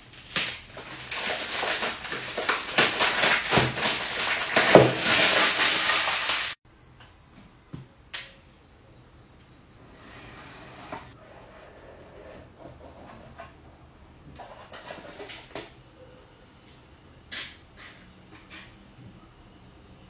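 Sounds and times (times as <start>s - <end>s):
cellophane crinkling and tearing: 0.0s - 6.6s.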